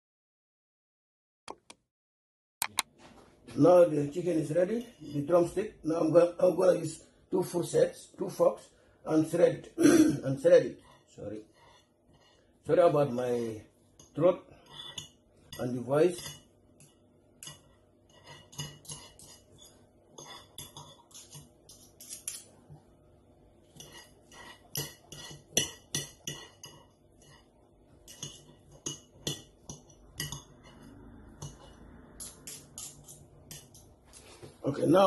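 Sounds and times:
metal forks clinking on a dish: 14.0 - 22.5, 23.8 - 27.4, 28.0 - 33.9.

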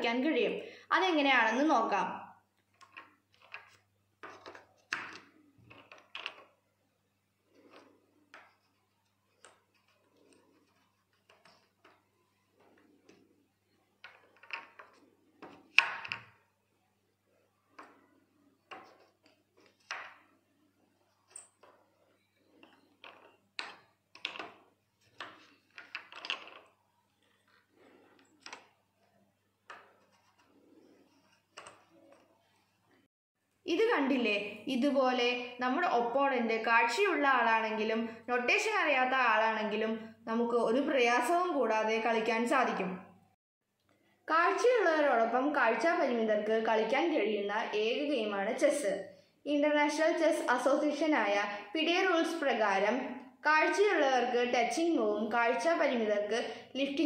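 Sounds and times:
wooden chess pieces knocking: 2.6 - 6.7, 7.4 - 16.6, 17.6 - 32.4.

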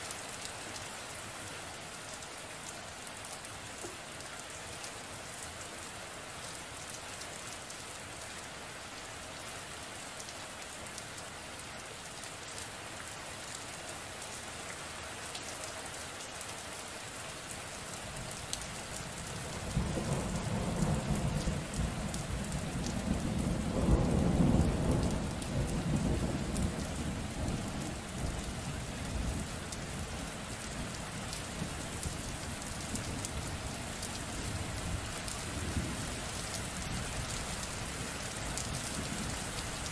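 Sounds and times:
steady rain falling: 0.0 - 39.9
rolling thunder rumble: 19.7 - 28.4.

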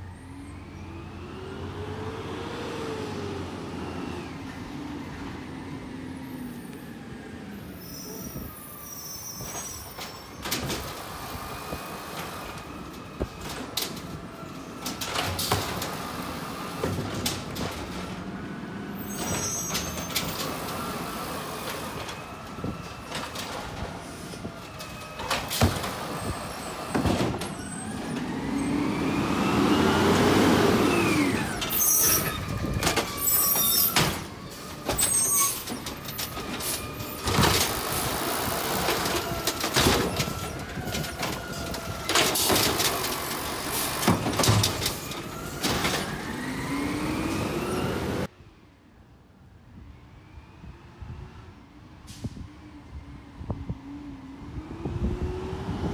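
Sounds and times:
carts banging: 9.4 - 46.7
garbage truck engine revving: 10.8 - 48.3
air brakes hissing: 52.1 - 52.6.

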